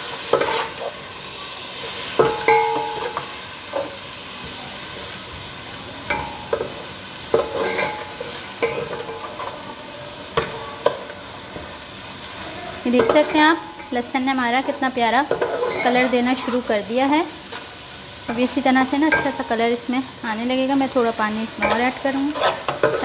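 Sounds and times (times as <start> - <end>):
garlic sizzling in oil: 0.0 - 23.0
metal spoon scraping pan: 0.1 - 1.1, 6.1 - 9.7, 12.9 - 19.8, 20.6 - 23.0.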